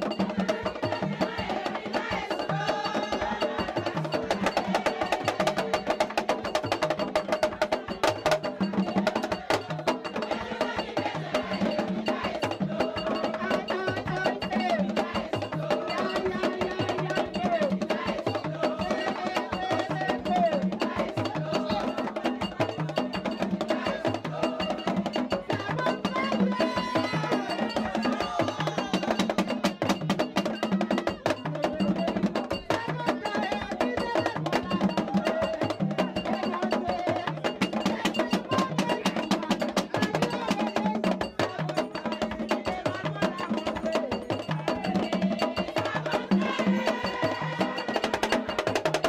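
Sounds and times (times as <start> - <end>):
drums and percussion beat: 0.0 - 49.0
group of voices singing: 0.0 - 49.0.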